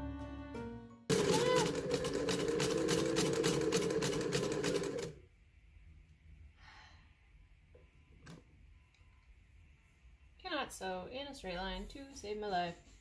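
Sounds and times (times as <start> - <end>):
sewing machine stitching: 1.1 - 5.2.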